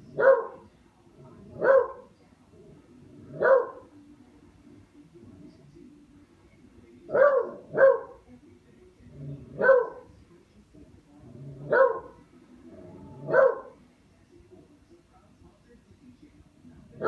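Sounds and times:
dog barking: 0.1 - 0.7, 1.4 - 2.1, 3.2 - 3.9, 7.1 - 8.2, 9.5 - 10.1, 11.6 - 12.2, 13.1 - 13.8.

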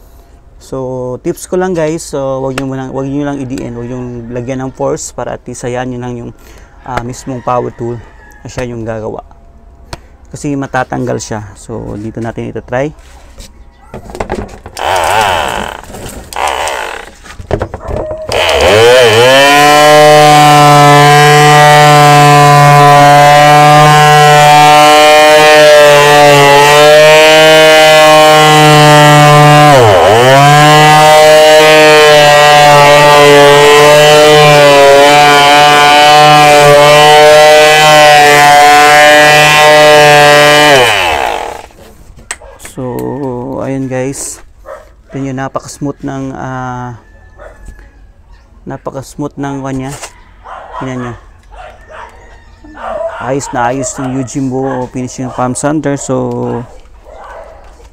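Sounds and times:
palm sander motor hum: 14.8 - 17.2, 18.3 - 41.8.

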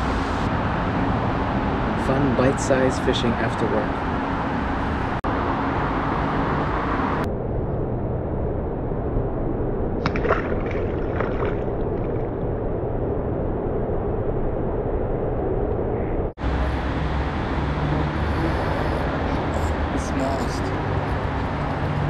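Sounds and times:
road traffic: 0.0 - 9.8, 13.4 - 22.0
object splashing into water: 10.0 - 12.4.

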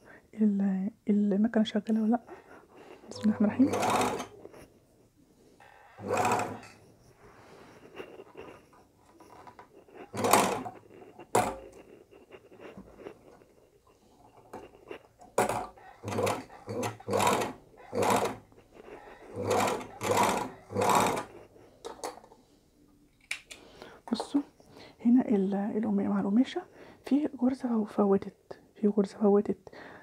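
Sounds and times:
sewing machine running: 3.1 - 4.4, 6.0 - 6.8, 9.4 - 11.7, 15.4 - 18.5, 19.2 - 21.4.

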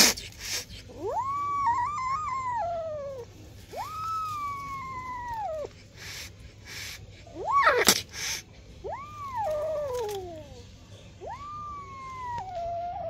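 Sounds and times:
kitten meowing: 8.8 - 10.6, 11.2 - 13.0.

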